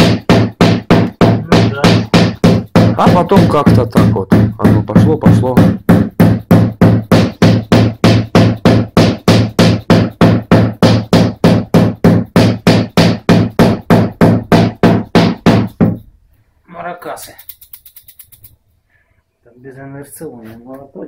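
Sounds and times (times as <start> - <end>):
hammer tapping sheet metal: 0.0 - 16.1.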